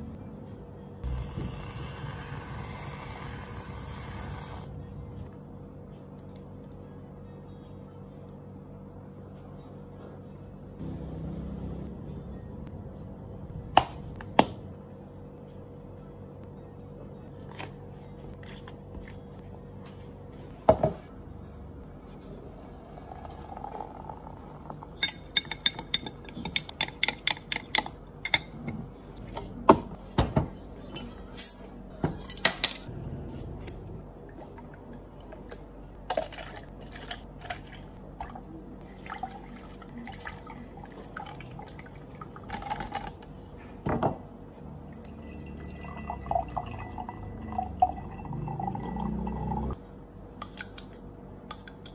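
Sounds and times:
tea pouring into jug: 0:22.8 - 0:24.8, 0:36.1 - 0:42.7, 0:44.9 - 0:49.7.

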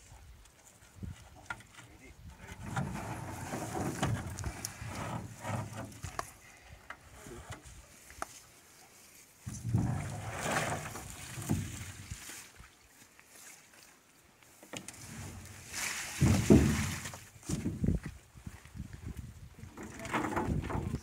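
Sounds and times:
bathtub scraping on ground: 0:02.5 - 0:06.1, 0:09.5 - 0:12.2, 0:14.8 - 0:17.3.

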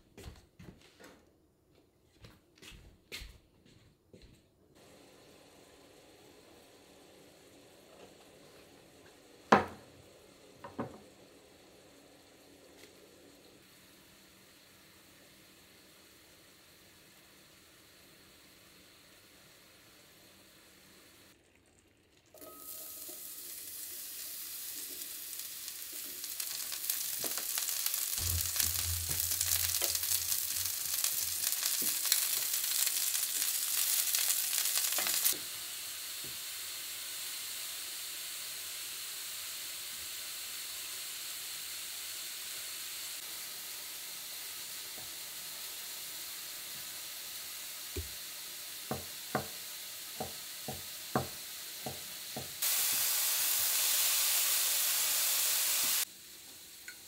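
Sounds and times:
mushrooms sizzling in a frying pan: 0:04.8 - 0:21.4, 0:22.3 - 0:57.0.

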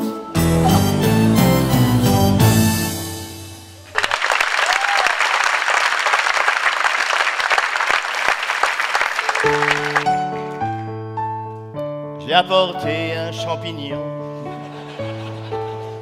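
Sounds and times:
keyboard chords: 0:00.0 - 0:03.9, 0:09.4 - 0:16.0
audience applauding: 0:03.8 - 0:10.2.

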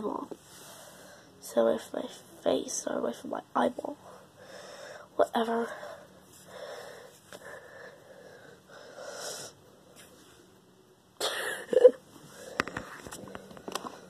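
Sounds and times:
breathy huffs: 0:05.7 - 0:09.6.

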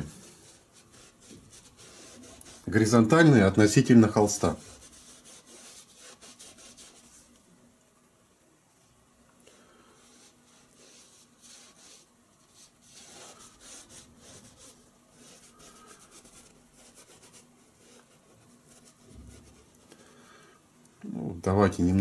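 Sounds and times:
paintbrush rubbing on canvas: 0:00.0 - 0:07.3, 0:09.9 - 0:19.9.

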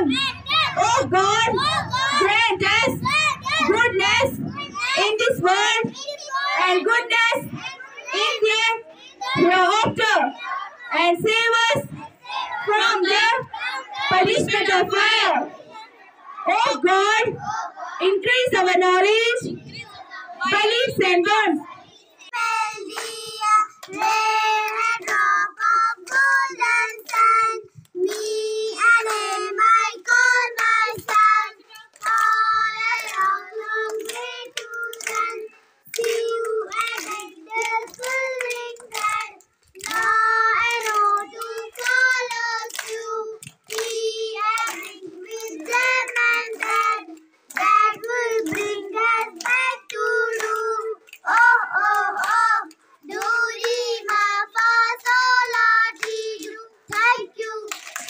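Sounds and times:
children singing: 0:00.0 - 0:05.0, 0:21.7 - 0:58.0.

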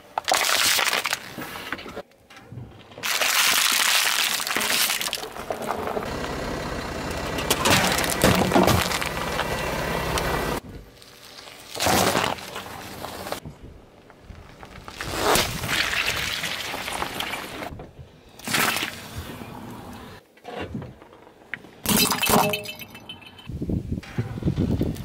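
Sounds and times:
car tyre crushing objects: 0:00.0 - 0:06.4, 0:07.1 - 0:13.4, 0:14.0 - 0:17.7.

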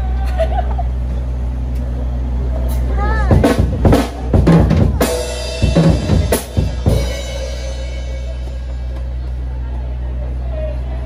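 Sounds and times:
drum kit playing: 0:02.7 - 0:09.4
cymbal crashes: 0:03.4 - 0:09.2.

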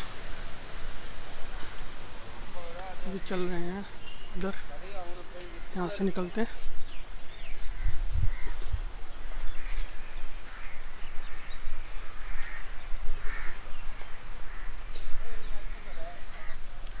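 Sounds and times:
crows cawing: 0:09.4 - 0:14.8, 0:15.9 - 0:17.0.

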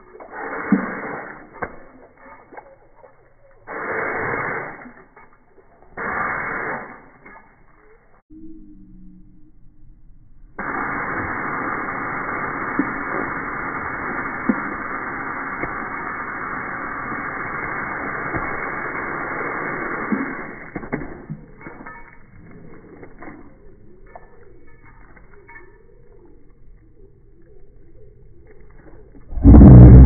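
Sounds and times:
water spraying from hose: 0:00.0 - 0:07.4, 0:10.6 - 0:21.3.

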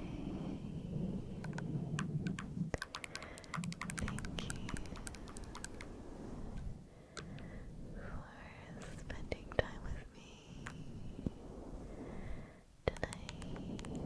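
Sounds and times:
light sharp tapping clicks: 0:01.4 - 0:05.9, 0:12.9 - 0:14.0.

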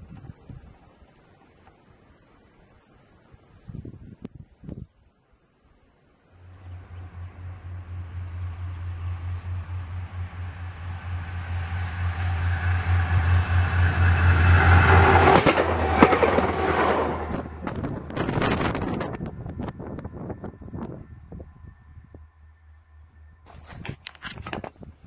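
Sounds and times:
train passing: 0:06.2 - 0:24.2
wheels clacking on rails: 0:06.5 - 0:19.3.

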